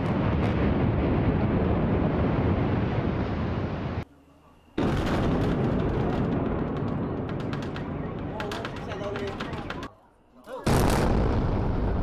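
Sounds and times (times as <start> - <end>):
building collapse rumble: 0.0 - 4.0, 4.8 - 9.9.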